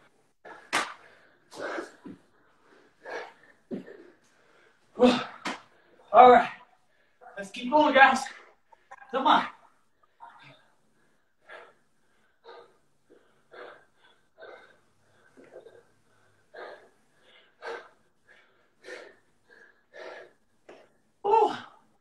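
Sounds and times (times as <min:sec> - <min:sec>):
man breathing hard: 0:10.0 - 0:20.9.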